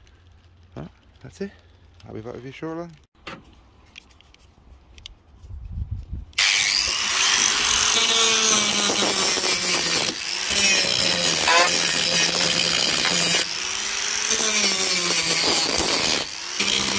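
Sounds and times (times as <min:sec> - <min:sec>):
angle grinder grinding metal: 0:06.4 - 0:16.9.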